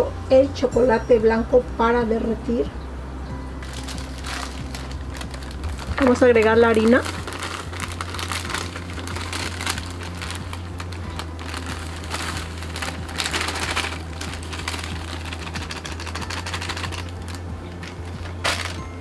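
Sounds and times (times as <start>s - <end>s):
powder pouring into bowl: 3.6s - 18.8s
plastic bag crinkling: 3.6s - 19.0s.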